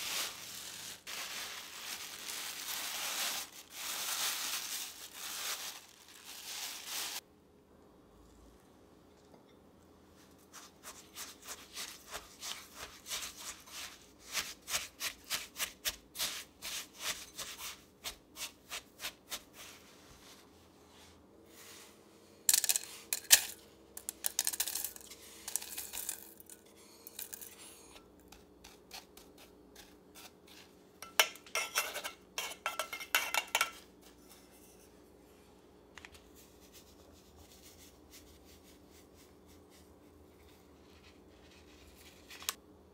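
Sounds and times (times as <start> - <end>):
parchment rustling: 0.0 - 7.2.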